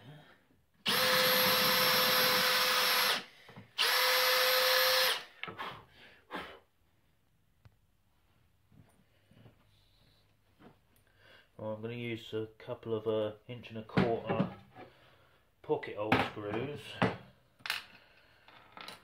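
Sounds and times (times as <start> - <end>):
cordless drill boring wood: 0.8 - 5.3.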